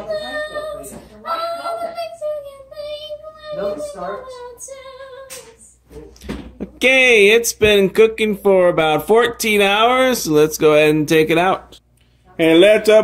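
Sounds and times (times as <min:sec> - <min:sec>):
child singing: 0:00.0 - 0:05.8.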